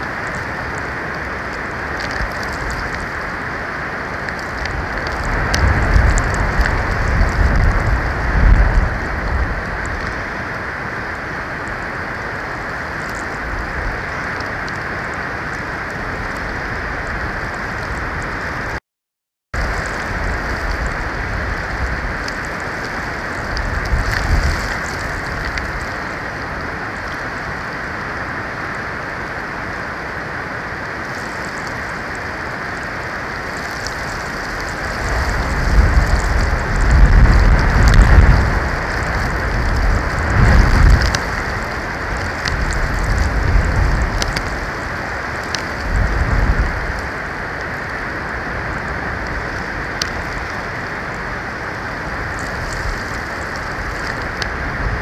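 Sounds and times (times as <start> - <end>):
falling precipitation: 0.0 - 18.8, 19.6 - 55.0
storm wind hissing: 0.0 - 18.8, 19.6 - 55.0
low rumbling surges: 19.6 - 55.0.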